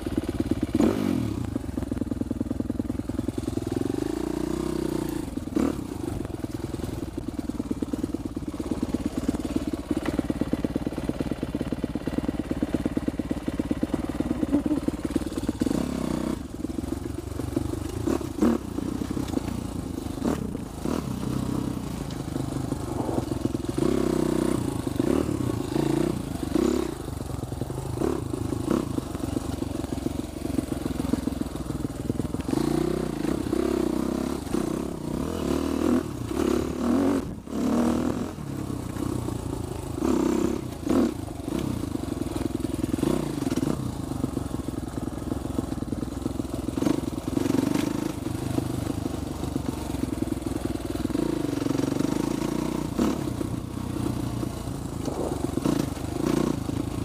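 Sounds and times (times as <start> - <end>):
dirt bike engine revving: 0.7 - 1.4, 3.4 - 6.2, 14.3 - 31.4, 51.0 - 57.0
bike rattling and knocking: 5.6 - 34.8, 53.6 - 57.0.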